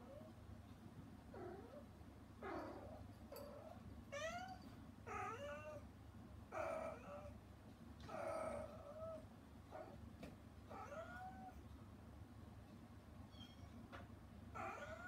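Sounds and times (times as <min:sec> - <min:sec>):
cat meowing: 0:10.7 - 0:11.5, 0:14.6 - 0:15.0.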